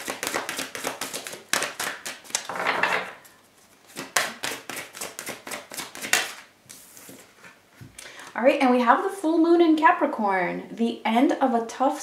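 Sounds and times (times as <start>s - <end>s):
cards being shuffled: 0.0s - 2.6s, 3.8s - 7.6s.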